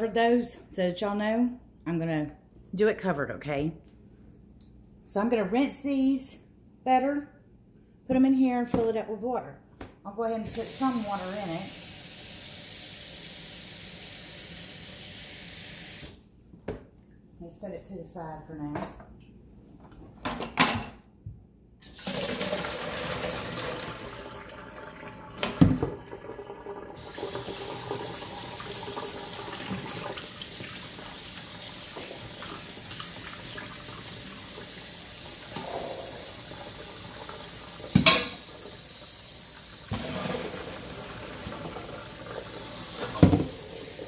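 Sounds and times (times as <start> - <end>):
faucet running into metal bowl: 21.8 - 44.0.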